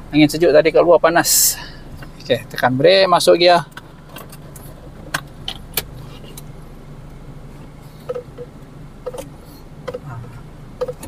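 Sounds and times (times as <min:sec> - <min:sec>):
car engine idling: 0:00.0 - 0:11.0
gear selector clicks: 0:03.7 - 0:07.2, 0:08.0 - 0:10.1, 0:10.8 - 0:11.0.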